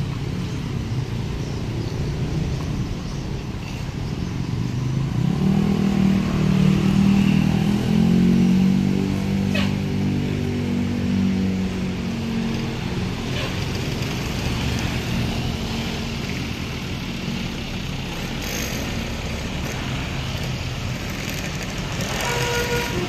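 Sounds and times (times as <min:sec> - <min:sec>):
bus engine passing: 0:00.0 - 0:23.0
road traffic: 0:00.0 - 0:23.0
vehicle horn: 0:22.0 - 0:23.0.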